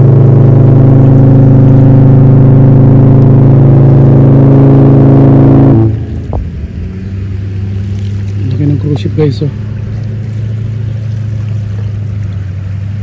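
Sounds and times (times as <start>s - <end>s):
ship's horn deep blast: 0.0s - 7.8s.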